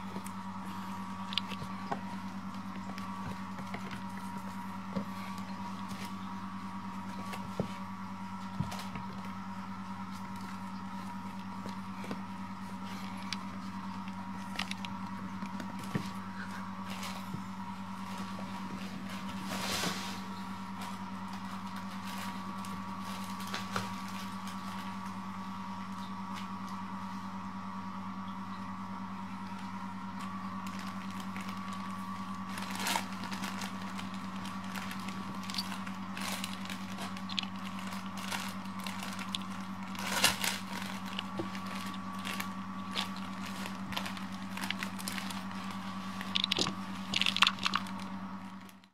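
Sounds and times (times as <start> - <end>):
steady low hum: 0.0 - 48.9
kittens rustling in fabric tunnel: 0.5 - 25.2, 30.6 - 48.1
small ticks: 46.2 - 48.0.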